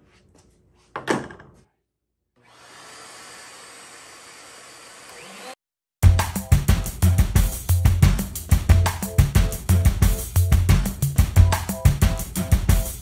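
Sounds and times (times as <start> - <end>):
electric motor running: 2.4 - 5.6
loud drum-led music: 6.0 - 13.0.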